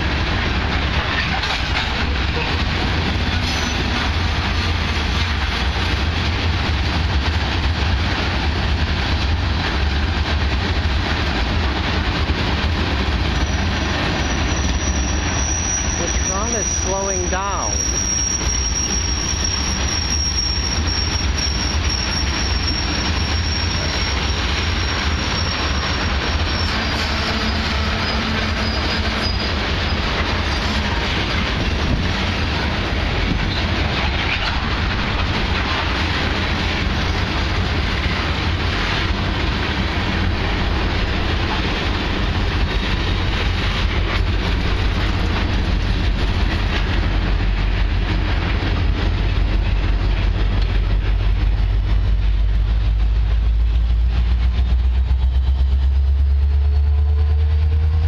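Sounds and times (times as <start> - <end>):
train wheels rumbling on rails: 0.0 - 58.0
high-pitched wheel squeal: 13.4 - 30.8.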